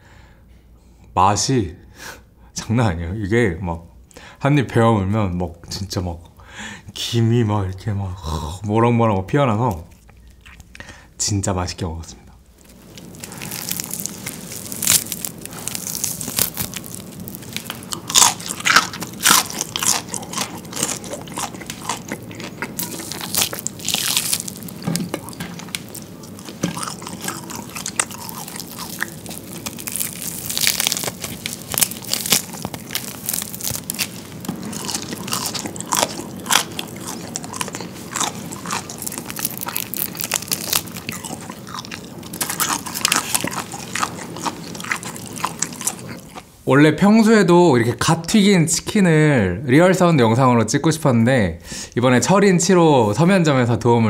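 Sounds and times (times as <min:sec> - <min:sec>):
biting and chewing fried chicken: 0:12.6 - 0:46.5
meat tearing: 0:12.6 - 0:46.5.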